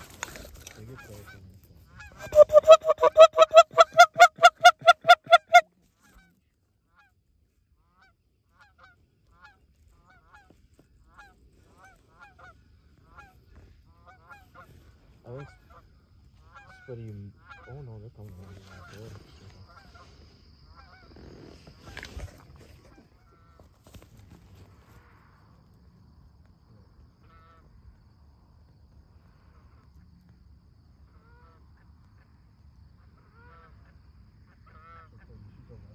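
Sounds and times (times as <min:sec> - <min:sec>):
distant geese honking: 0:00.9 - 0:05.7, 0:11.2 - 0:23.7
goose honking: 0:02.0 - 0:05.7.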